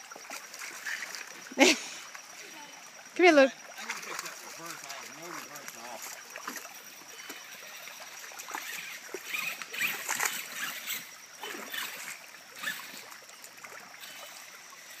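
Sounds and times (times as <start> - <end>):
creek trickling over rocks: 0.0 - 15.0
footsteps splashing through water: 3.8 - 7.4.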